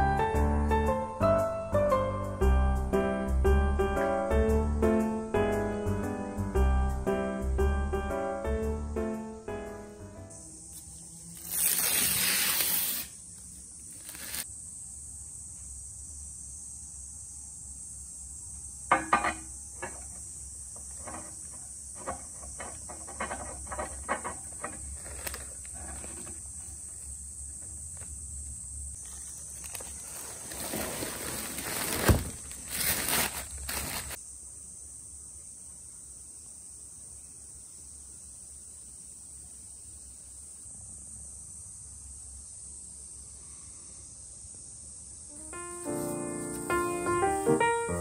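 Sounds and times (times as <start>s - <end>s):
steady high hiss: 0.0s - 48.0s
cardboard rustling: 13.9s - 14.4s, 24.6s - 27.1s, 29.0s - 34.2s.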